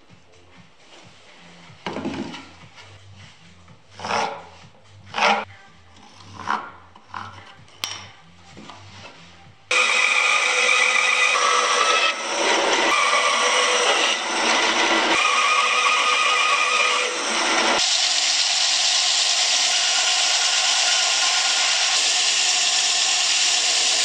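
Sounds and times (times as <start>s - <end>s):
bandsaw cutting wood: 4.0s - 5.4s, 9.7s - 24.0s
disc sander whirring: 9.7s - 24.0s.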